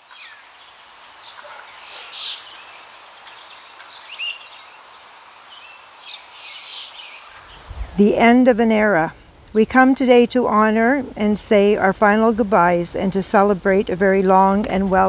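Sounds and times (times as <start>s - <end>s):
steady background hiss: 0.0s - 15.0s
birds chirping and whistling: 1.2s - 4.8s.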